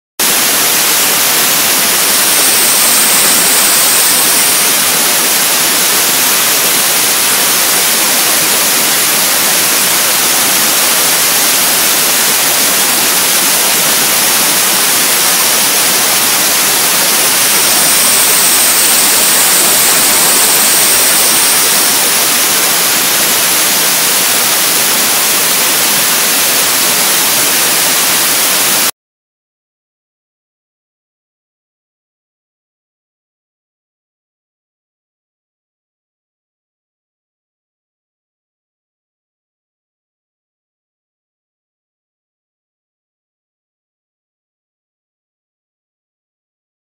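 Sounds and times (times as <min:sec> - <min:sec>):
compressed air hissing: 0:00.2 - 0:28.9.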